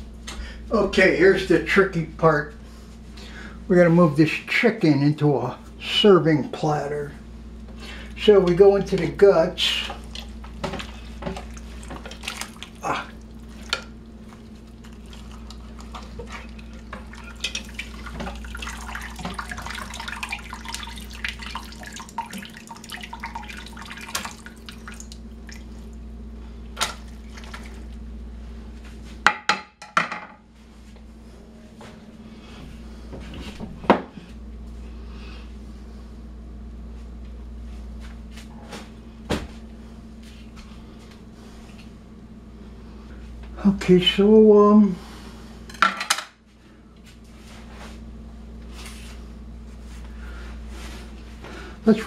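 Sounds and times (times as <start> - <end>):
broth pouring and dripping: 9.7 - 26.0, 26.9 - 28.0.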